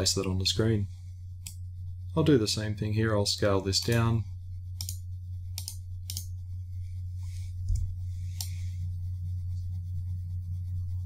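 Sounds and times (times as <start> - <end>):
steady low hum: 0.0 - 11.0
computer mouse clicks: 4.8 - 6.3.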